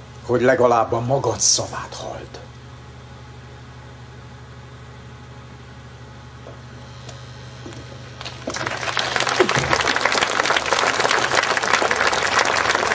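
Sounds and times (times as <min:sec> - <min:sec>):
audience applause: 0:08.2 - 0:12.9.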